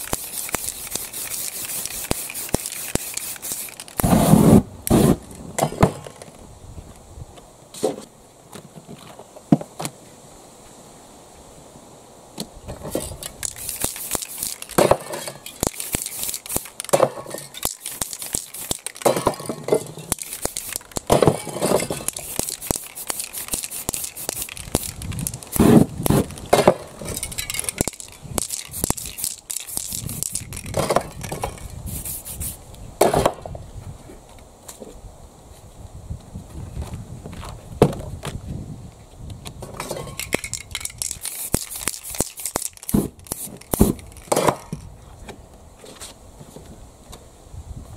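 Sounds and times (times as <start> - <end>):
spray-paint cans hissing: 0.0 - 5.1, 12.8 - 32.6, 40.2 - 44.6
sharp clicks and knocks: 12.7 - 31.7.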